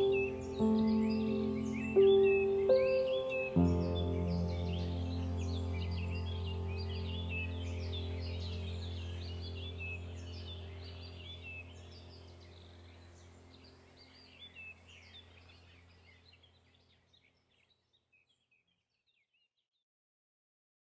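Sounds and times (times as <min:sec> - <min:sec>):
sustained low tones: 0:00.0 - 0:13.6
birds chirping: 0:00.0 - 0:18.8.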